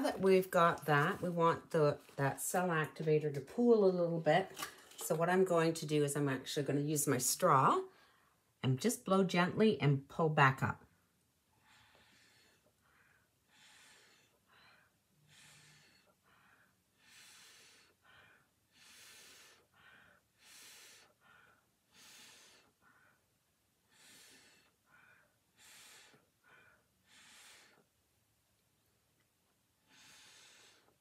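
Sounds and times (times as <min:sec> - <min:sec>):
breathing in: 0:11.6 - 0:23.2, 0:29.9 - 0:31.0
breath puffs through a straw: 0:29.8 - 0:31.0.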